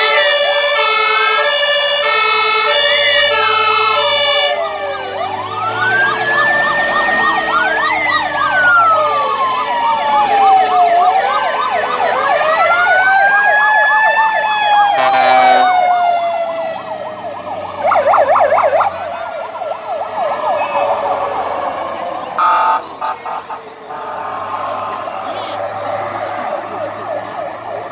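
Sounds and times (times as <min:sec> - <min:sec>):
fire engine sirens: 0:00.0 - 0:27.9
horn blast: 0:15.0 - 0:15.7, 0:22.4 - 0:25.7.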